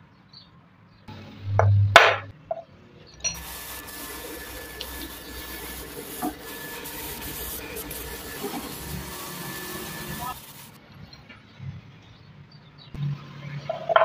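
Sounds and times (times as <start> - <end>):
drill press cutting steel: 3.2 - 10.8
high machine whine: 3.2 - 10.8.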